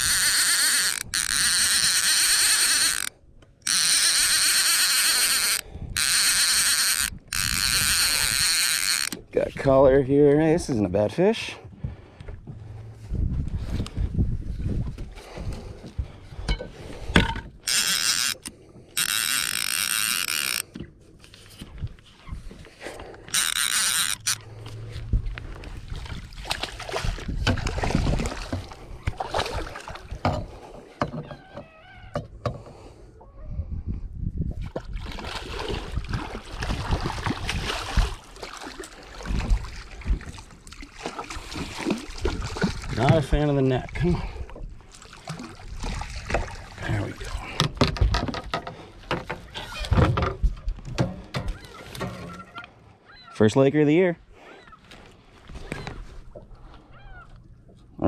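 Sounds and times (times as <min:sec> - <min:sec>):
fishing reel drag buzzing: 0:00.0 - 0:09.2, 0:17.6 - 0:20.7, 0:23.2 - 0:25.0
fish thrashing and splashing: 0:22.9 - 0:30.9, 0:34.6 - 0:49.9.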